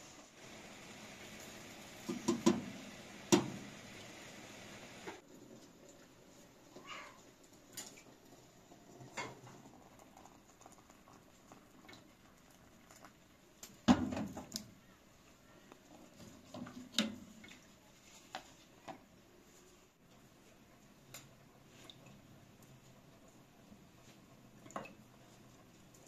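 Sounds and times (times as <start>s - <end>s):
kettle and teapot clunking: 2.0s - 3.7s, 9.0s - 10.7s, 13.8s - 14.6s.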